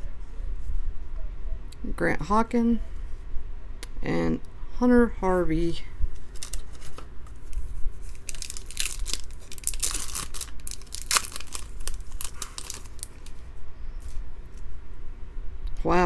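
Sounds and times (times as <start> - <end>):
foil wrapper crinkling and tearing: 6.2 - 13.4.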